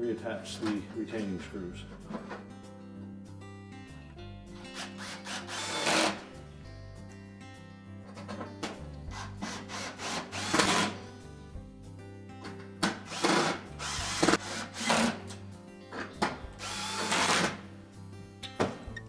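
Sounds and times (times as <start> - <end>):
background music: 0.0 - 19.0
power drill driving screws: 4.8 - 6.2, 9.1 - 11.0, 12.8 - 15.3, 16.6 - 17.6.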